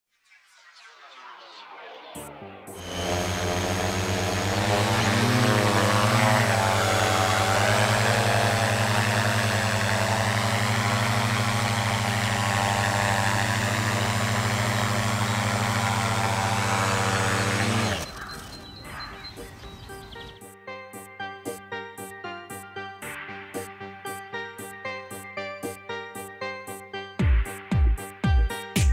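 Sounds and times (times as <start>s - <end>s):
drone propellers buzzing: 2.8s - 18.3s.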